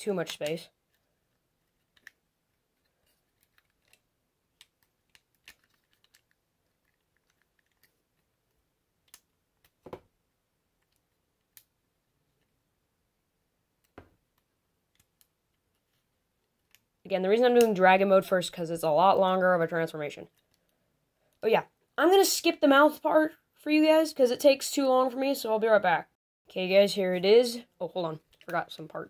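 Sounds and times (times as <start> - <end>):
plastic parts clicking: 0.2 - 10.0.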